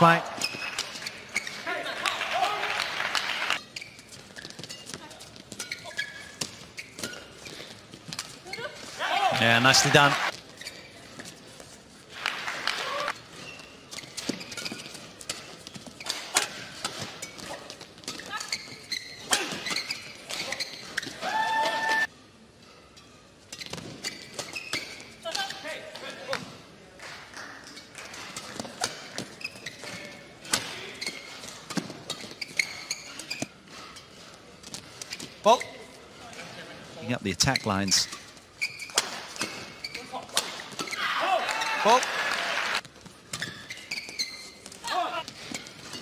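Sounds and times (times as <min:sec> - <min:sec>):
shoes squeaking on court: 0:00.0 - 0:01.7, 0:03.5 - 0:12.1, 0:13.1 - 0:21.2, 0:22.9 - 0:25.7, 0:27.6 - 0:36.3, 0:37.3 - 0:41.7, 0:42.8 - 0:46.0.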